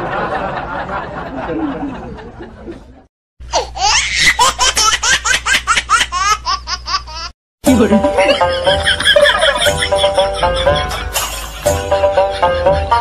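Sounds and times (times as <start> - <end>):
high-pitched rapid laugh: 3.5 - 7.3, 8.1 - 13.0
laughter sound effect: 7.9 - 13.0.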